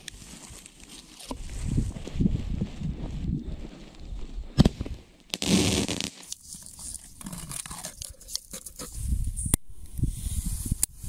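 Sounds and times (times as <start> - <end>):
firework fuse hissing and crackling: 4.4 - 7.2.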